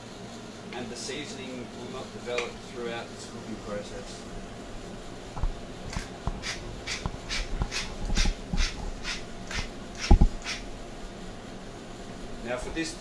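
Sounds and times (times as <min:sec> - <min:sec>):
pepper mill grinding: 0:05.9 - 0:10.6.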